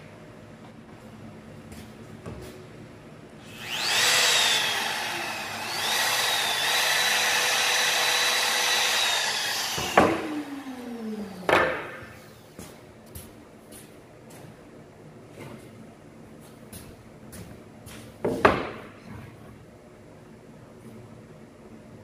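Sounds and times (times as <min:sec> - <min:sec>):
wood router whining: 0:03.4 - 0:12.3.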